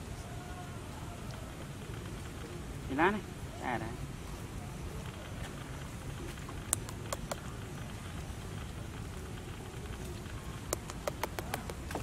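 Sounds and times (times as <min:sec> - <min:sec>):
low outdoor rumble: 0:00.0 - 0:12.0
sharp crackles and clicks: 0:05.0 - 0:12.0.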